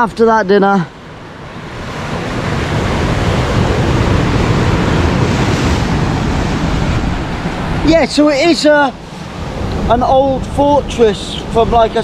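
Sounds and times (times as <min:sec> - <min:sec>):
waves breaking on rocky shore: 0:00.6 - 0:12.0
wind rumbling on microphone: 0:01.0 - 0:12.0.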